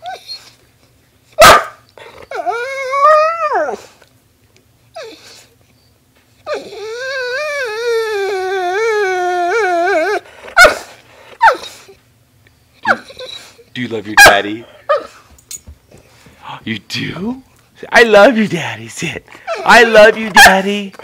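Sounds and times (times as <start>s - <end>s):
dog howling whines: 1.4s - 3.9s, 5.0s - 5.5s, 6.4s - 10.8s, 11.4s - 12.0s.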